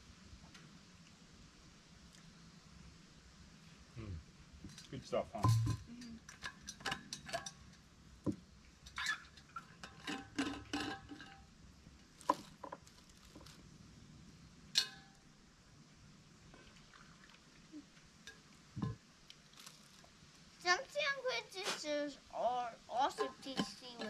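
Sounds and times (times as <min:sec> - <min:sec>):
metal thermos clinking: 0:04.8 - 0:07.6, 0:08.9 - 0:11.4, 0:14.8 - 0:15.1, 0:23.1 - 0:24.0.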